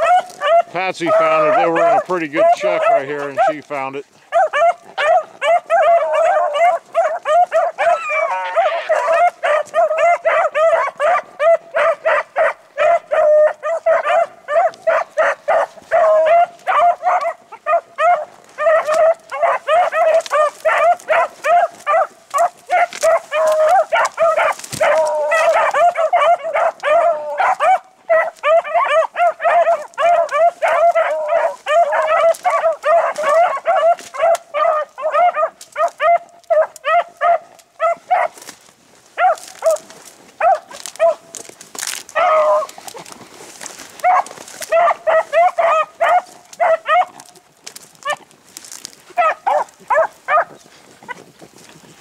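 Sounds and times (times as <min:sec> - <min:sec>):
hounds baying: 0:00.0 - 0:51.7.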